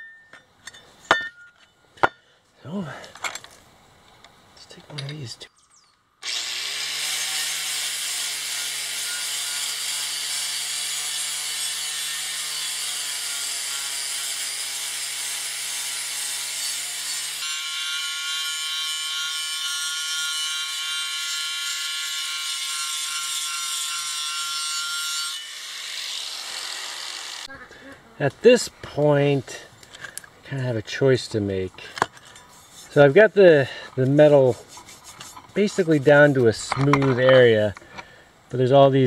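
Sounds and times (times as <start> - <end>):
angle grinder grinding metal: 6.2 - 27.8, 30.9 - 38.1.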